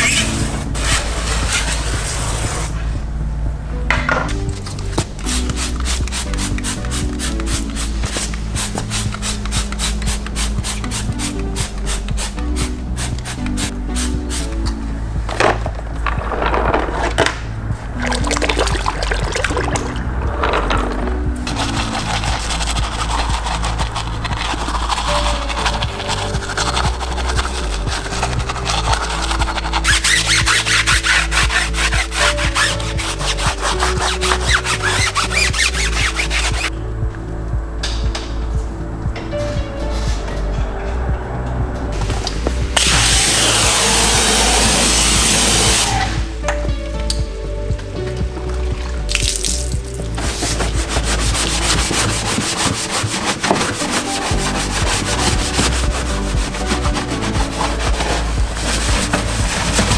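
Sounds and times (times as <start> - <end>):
steady low hum: 0.0 - 49.1
brush scrubbing a surface: 21.5 - 36.7, 50.2 - 59.9.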